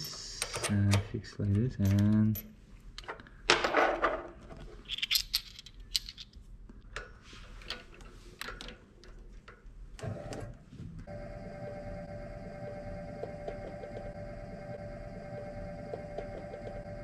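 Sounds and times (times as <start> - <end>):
metal parts clicking and clinking: 1.8 - 6.5
low machine rumble: 11.0 - 17.0
steady machine hum: 11.0 - 17.0.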